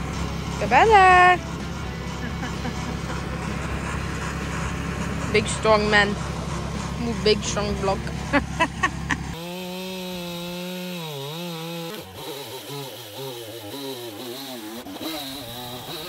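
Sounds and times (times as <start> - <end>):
tractor engine idling: 0.0 - 9.4
chainsaw cutting log: 0.0 - 16.0.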